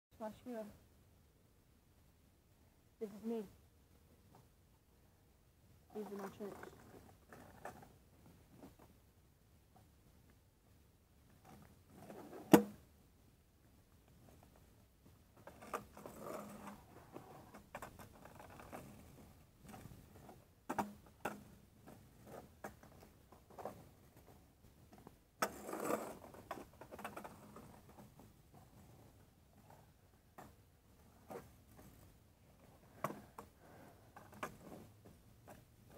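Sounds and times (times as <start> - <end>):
scooter rolling and scraping: 5.9 - 9.0, 11.3 - 12.9, 14.2 - 35.9.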